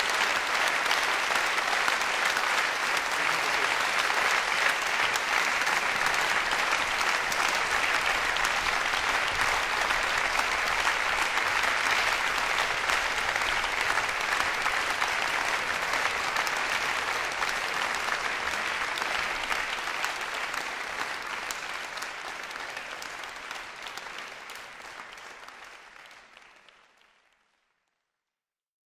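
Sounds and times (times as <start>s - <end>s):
audience applauding: 0.0s - 27.9s.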